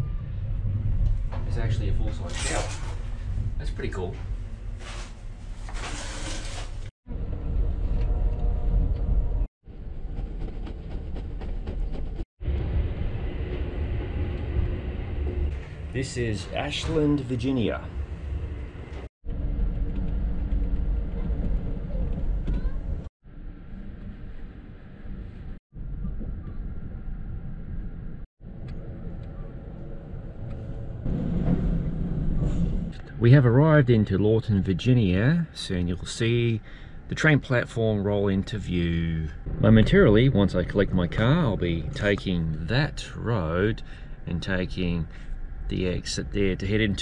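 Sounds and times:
train wheels rumbling on rail: 7.2s - 23.0s.

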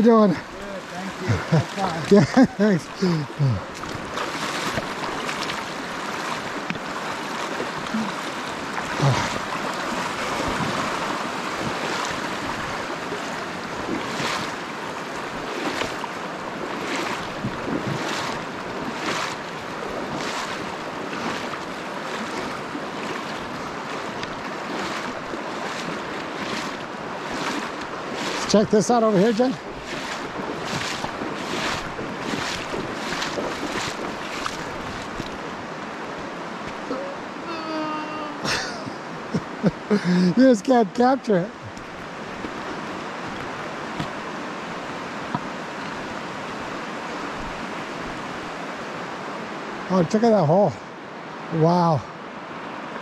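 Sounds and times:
rushing river water: 0.0s - 53.0s
splashing footsteps in water: 0.2s - 36.9s, 41.7s - 45.9s.

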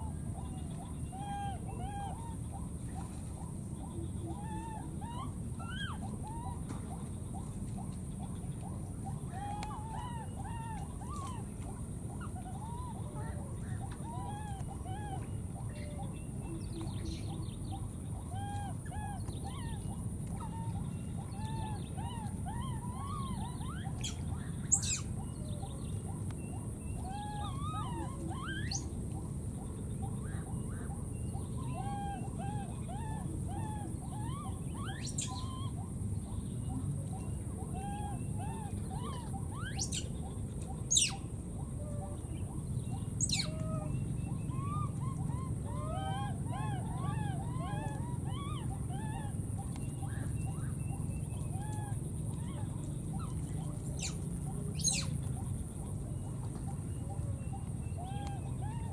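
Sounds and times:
baby monkey whimpering coos: 27.0s - 28.8s.

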